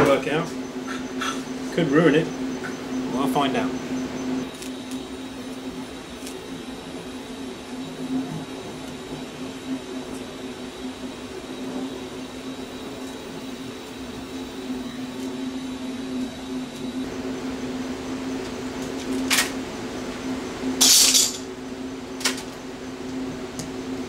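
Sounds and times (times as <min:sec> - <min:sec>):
faint high whine: 0:00.0 - 0:24.0
welding arc hissing and buzzing: 0:00.0 - 0:24.0.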